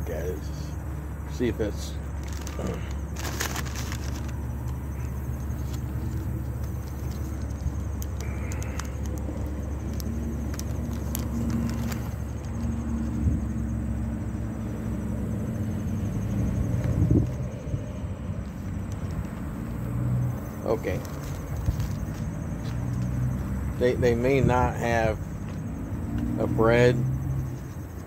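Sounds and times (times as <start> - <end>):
low engine hum: 0.0 - 28.0
crinkles and clicks: 2.2 - 12.7, 18.4 - 19.8, 20.9 - 23.1.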